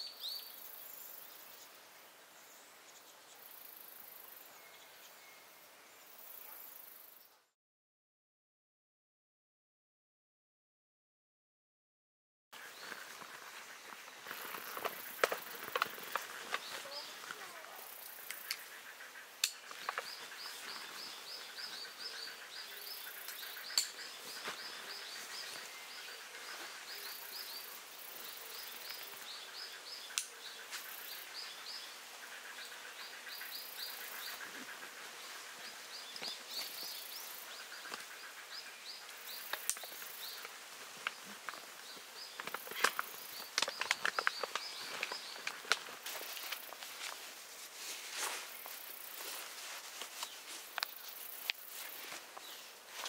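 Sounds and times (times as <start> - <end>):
bird chirping: 12.6 - 40.5.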